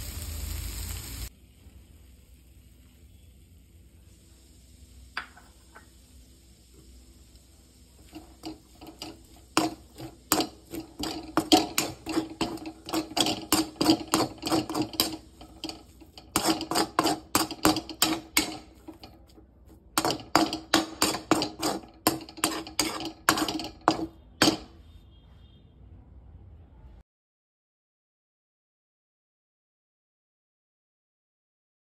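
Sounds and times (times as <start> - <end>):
metal spatula clanking on wok: 8.1 - 19.3, 20.0 - 24.7.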